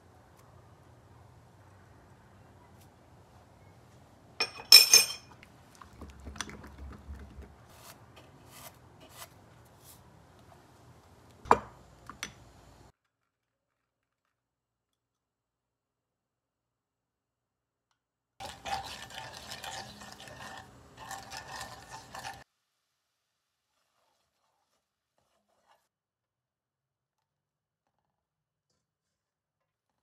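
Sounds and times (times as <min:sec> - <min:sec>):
kitchenware clattering: 0:04.4 - 0:05.4
seasoning ticks and scrapes: 0:18.4 - 0:22.4.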